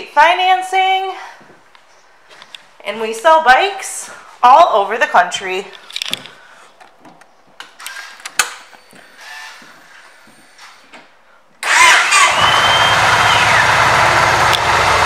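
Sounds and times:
motorcycle engine starting: 11.6 - 15.0.

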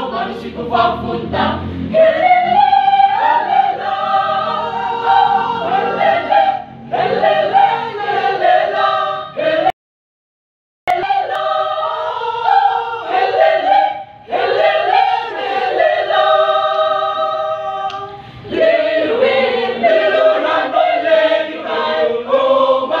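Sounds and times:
choir singing a cappella: 0.0 - 9.8, 10.9 - 23.0.

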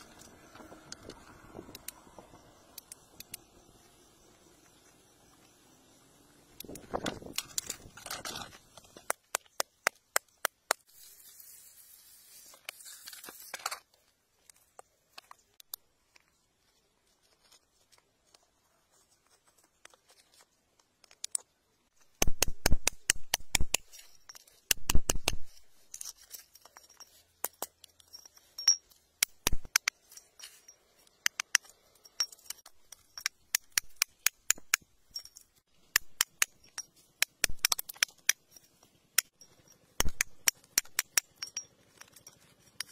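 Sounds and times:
metal tool scraping in gravel: 6.8 - 9.1, 10.9 - 14.0, 25.4 - 29.1.

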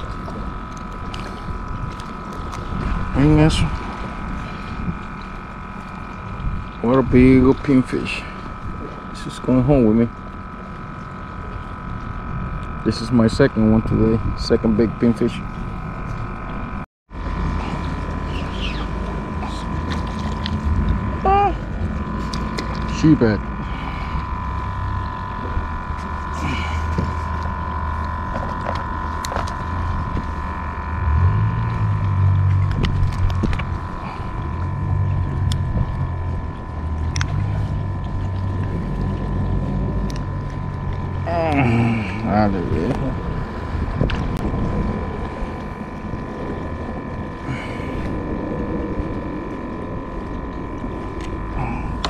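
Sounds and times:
boat engine droning: 0.0 - 52.0
high-pitched whine: 0.0 - 52.0
low rumble: 0.0 - 52.0
wind buffeting microphone: 11.8 - 52.0.

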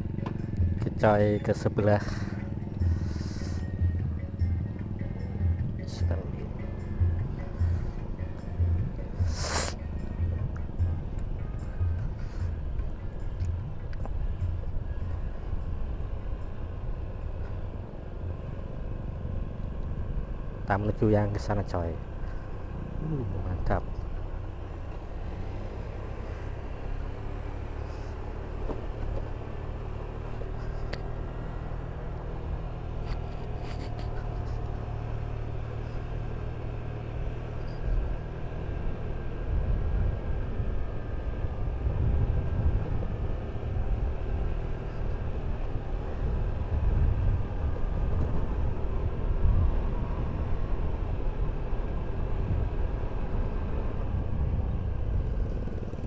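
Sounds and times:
scooter engine cruising: 0.0 - 56.0
wind rumble on microphone: 39.2 - 56.0.

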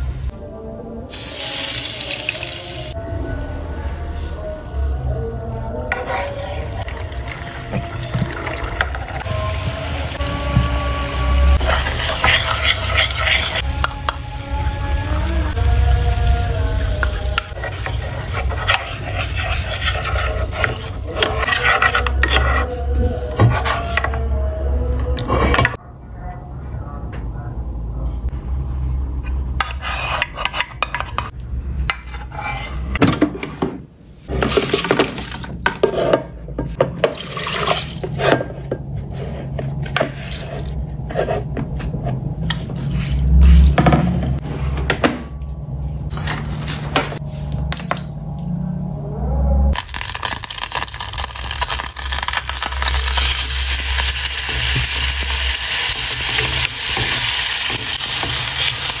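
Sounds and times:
wooden spoon scraping metal pan: 5.9 - 6.9, 11.6 - 13.7, 17.3 - 24.2, 29.6 - 33.6, 34.3 - 43.8
pan and bowl clinking: 11.6 - 14.2
short electronic beep: 46.1 - 46.6, 47.7 - 48.3.

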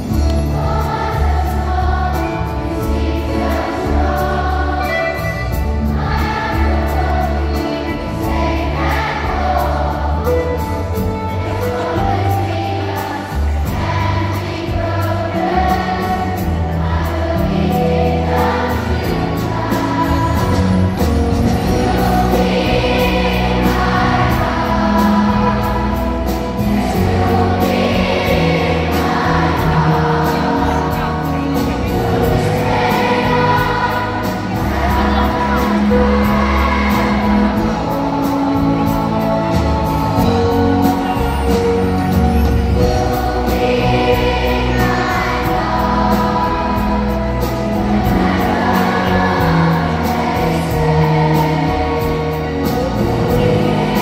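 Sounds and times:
amplified live band: 0.0 - 54.0
children's choir singing: 0.0 - 54.0.

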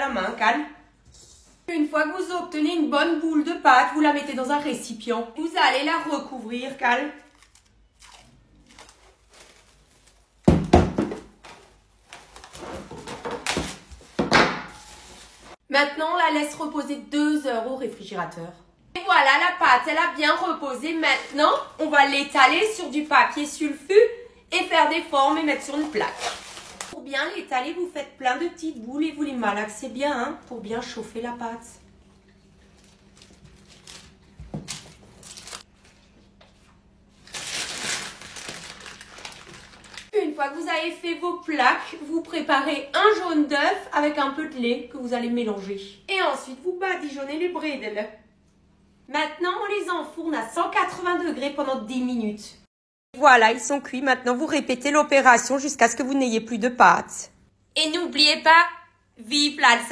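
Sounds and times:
baking paper crinkling: 6.8 - 10.5, 11.2 - 15.6, 20.7 - 22.6, 25.1 - 27.0, 32.2 - 40.1
cling film rustling and crackling: 7.2 - 10.5, 25.4 - 27.0, 32.2 - 36.1, 37.1 - 40.1.

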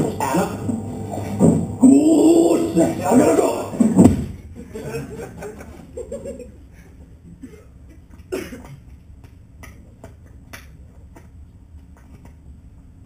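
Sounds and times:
low room hum: 0.0 - 13.0
person coughing: 7.4 - 8.8.

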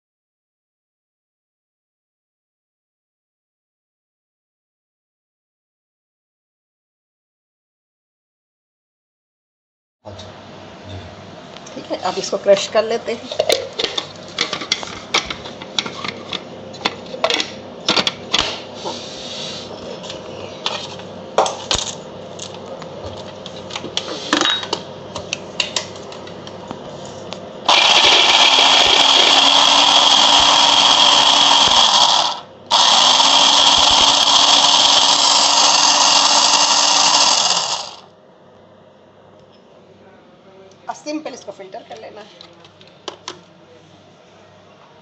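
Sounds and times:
food chopper clicks and knocks: 27.7 - 38.0
food chopper motor running: 27.7 - 38.1.

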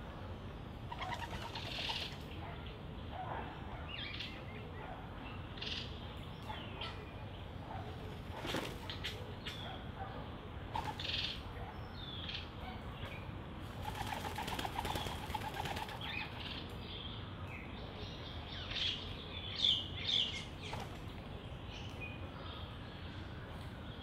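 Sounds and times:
small birds chirping: 0.0 - 24.0
doves' wings flapping: 8.1 - 9.1, 10.7 - 11.0, 13.7 - 16.2.

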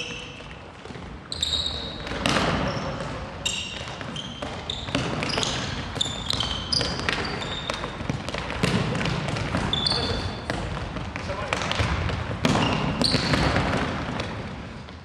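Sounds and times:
shoes squeaking on court floor: 0.0 - 15.0
ball kicked and bouncing: 3.7 - 14.4.

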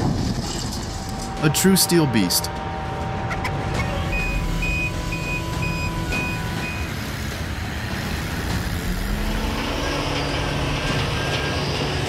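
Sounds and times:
heavy vehicle engine running: 0.0 - 12.0
reversing alarm beeps: 2.9 - 7.0.

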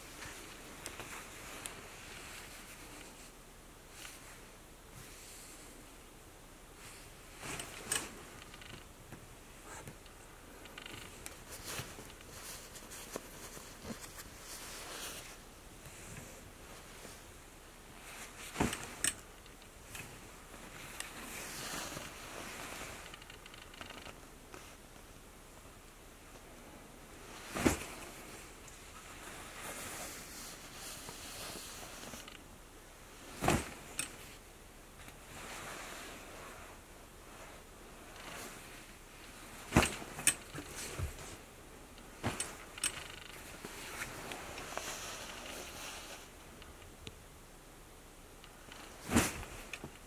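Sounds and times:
jackets rustling on a rack: 0.0 - 5.8, 6.7 - 47.0, 48.4 - 50.0
faint hiss: 0.0 - 50.0
hangers clicking and knocking: 39.6 - 41.4, 42.2 - 44.7.

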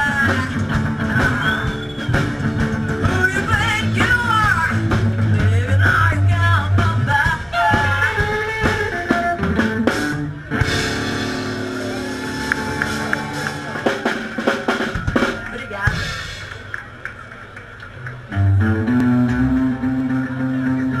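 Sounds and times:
rock and roll band playing: 0.0 - 17.4, 18.1 - 21.0.

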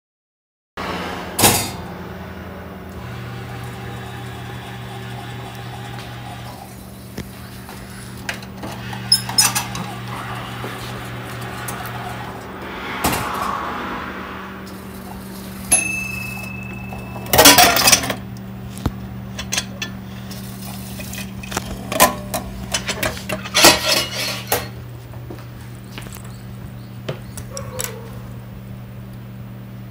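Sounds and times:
loud rush: 0.8 - 2.9, 9.8 - 16.9
vending machine humming: 0.8 - 29.9.

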